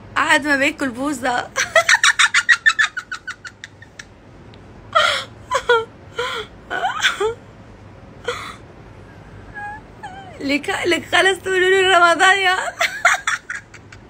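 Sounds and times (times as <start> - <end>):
woman laughing: 1.6 - 4.1, 5.0 - 7.4, 12.5 - 14.0.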